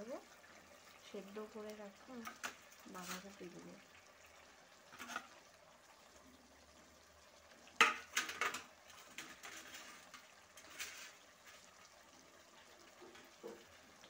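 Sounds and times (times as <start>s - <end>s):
food sizzling: 0.0s - 14.0s
scraping in a pan: 2.1s - 3.6s, 4.7s - 5.5s, 7.7s - 12.1s.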